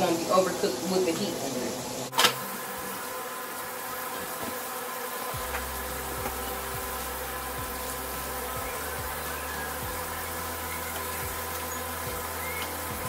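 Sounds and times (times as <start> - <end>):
steady buzzing hum: 0.0 - 13.0
steaks sizzling in a skillet: 0.0 - 13.0
low hum: 5.4 - 13.0.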